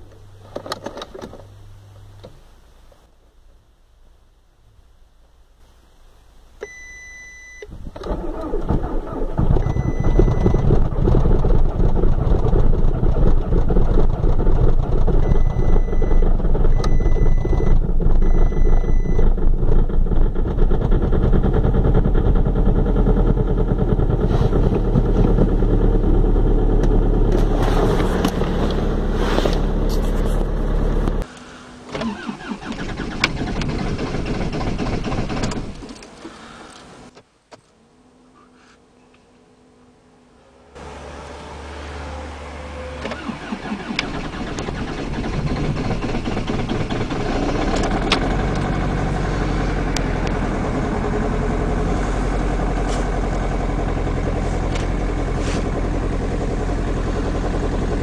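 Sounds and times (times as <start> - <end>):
car warning chime beeping: 6.6 - 7.7, 15.2 - 19.3
diesel car engine starting: 6.6 - 37.1, 40.7 - 58.0.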